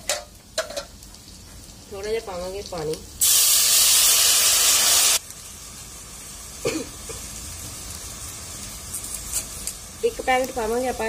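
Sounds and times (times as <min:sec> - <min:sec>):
oil sizzling in a pan: 0:00.0 - 0:11.0.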